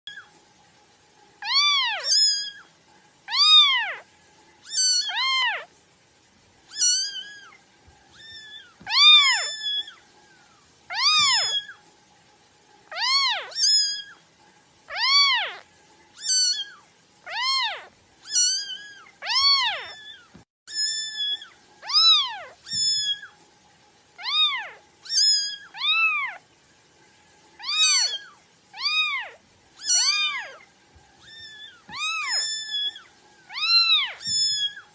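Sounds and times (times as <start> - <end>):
kitten mewing: 10.9 - 11.7, 16.2 - 23.2.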